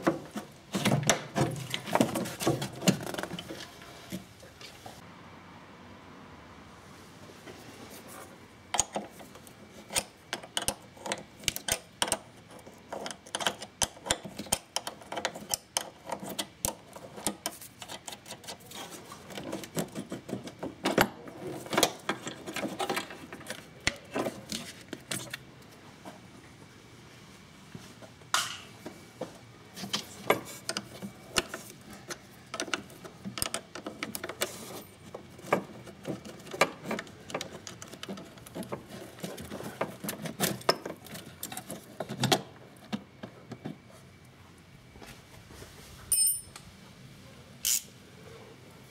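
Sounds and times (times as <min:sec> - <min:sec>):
metallic clicks from hand tools: 0:47.6 - 0:47.9.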